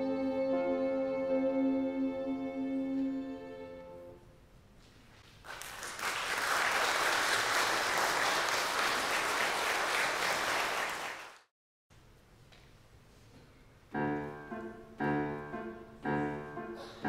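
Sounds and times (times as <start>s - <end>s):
violin and euphonium chord: 0.0s - 4.2s
audience applause: 5.4s - 11.5s.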